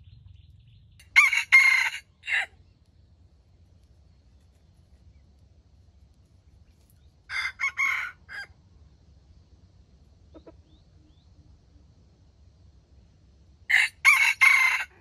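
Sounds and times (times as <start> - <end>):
rooster crowing: 1.0 - 2.6, 7.3 - 8.6, 13.7 - 15.0.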